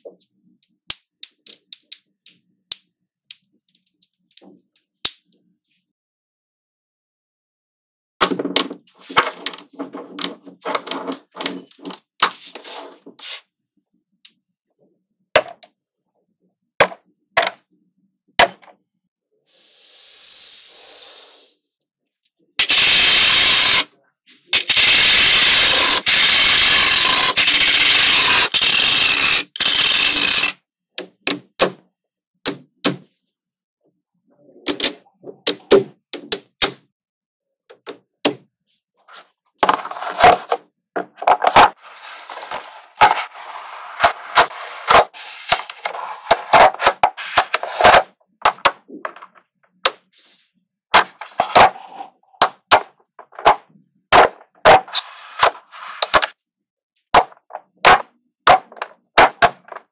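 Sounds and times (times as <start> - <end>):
magnetic balls clicking together: 0.6 - 4.4.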